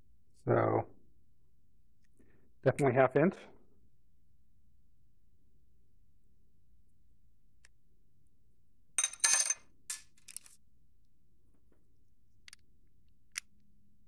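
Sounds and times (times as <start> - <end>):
small metal parts clinking: 9.0 - 10.6.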